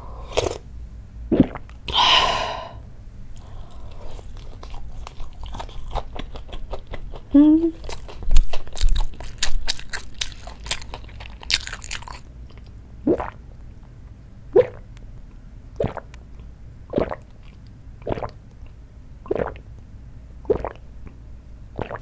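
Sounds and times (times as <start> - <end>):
person gulping drink: 1.3 - 2.8, 12.5 - 13.4, 14.6 - 14.8, 15.8 - 19.6, 20.5 - 20.8, 21.8 - 22.0
crunchy chewing: 3.4 - 12.7.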